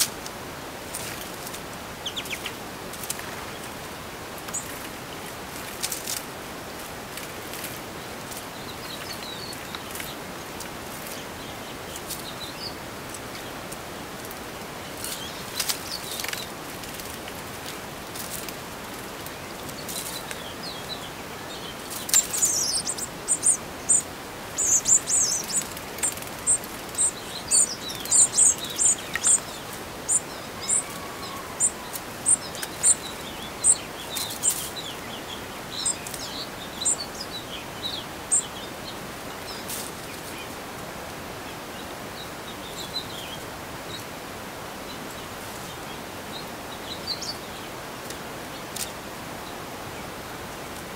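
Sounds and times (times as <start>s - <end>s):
rustles or flutters: 0.0s - 12.3s, 14.2s - 21.0s, 24.8s - 35.0s, 39.5s - 40.6s
faint outdoor hiss: 0.0s - 50.9s
small songbirds chirping: 0.0s - 50.9s.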